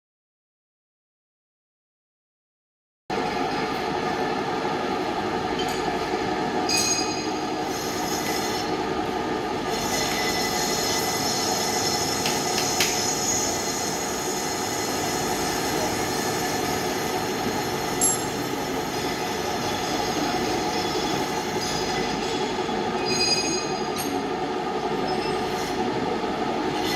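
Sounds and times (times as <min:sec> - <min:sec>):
squealing metal cutting: 0:19.1 - 0:24.0.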